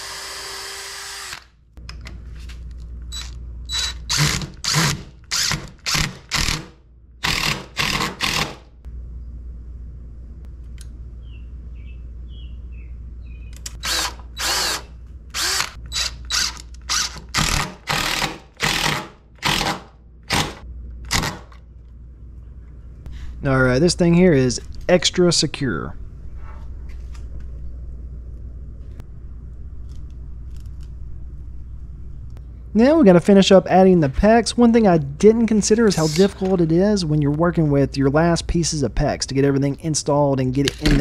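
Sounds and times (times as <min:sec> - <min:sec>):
impact driver driving screws: 0:03.1 - 0:08.6, 0:15.4 - 0:21.6.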